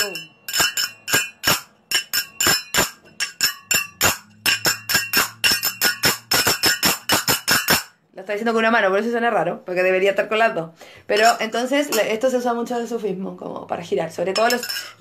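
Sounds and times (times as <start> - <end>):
metal hand cymbals clashing: 0.0 - 7.9.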